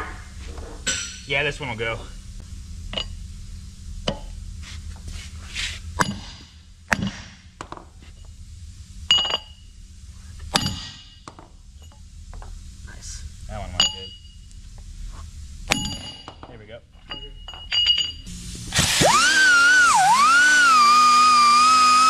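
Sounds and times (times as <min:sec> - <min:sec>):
hammer striking steel: 0:04.1 - 0:04.4, 0:06.0 - 0:07.5, 0:10.5 - 0:11.3, 0:15.7 - 0:16.5.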